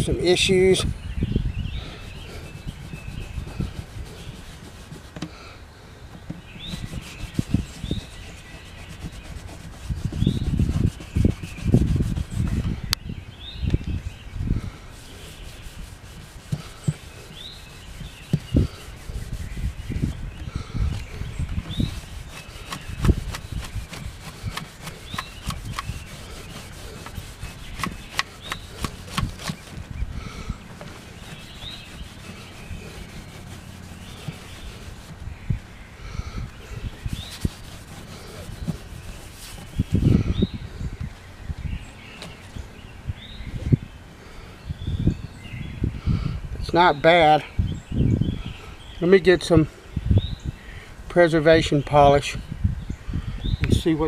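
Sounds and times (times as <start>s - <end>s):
cloth rag rubbing on guitar: 6.7s - 12.6s, 15.0s - 20.2s, 21.7s - 29.9s, 30.8s - 35.2s, 37.0s - 40.1s.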